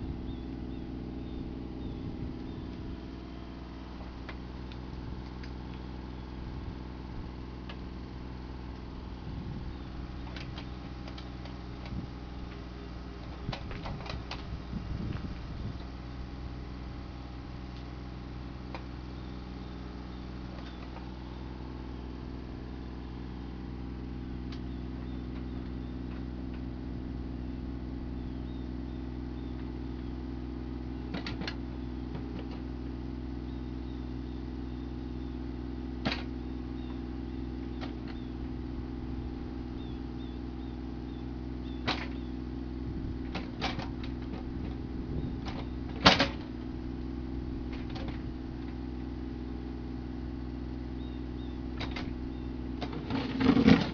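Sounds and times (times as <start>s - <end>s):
diesel excavator engine running: 0.0s - 53.9s
bucket clanking on stony soil: 52.8s - 53.9s.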